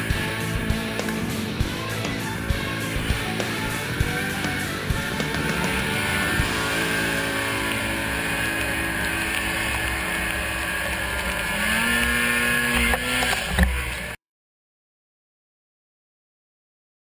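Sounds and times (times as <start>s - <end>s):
snowmobile engine running: 0.0s - 14.2s.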